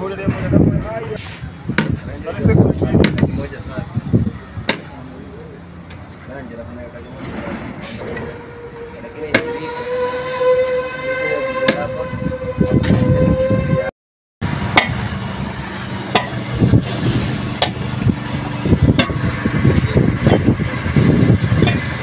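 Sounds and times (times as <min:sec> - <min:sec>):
steel bar knocking on wheel rim: 0:02.9 - 0:03.4, 0:18.9 - 0:19.3.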